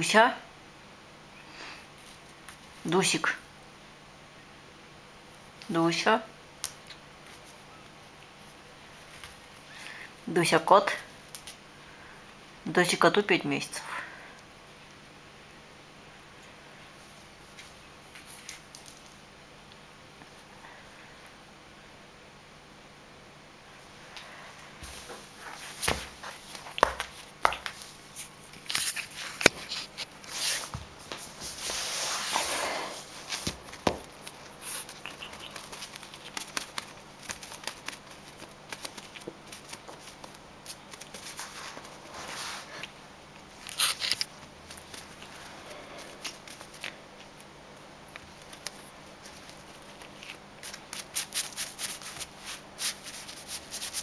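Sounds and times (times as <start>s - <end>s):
feather rustling on floor: 24.8s - 42.8s
kitten paws scrabbling: 33.2s - 42.0s.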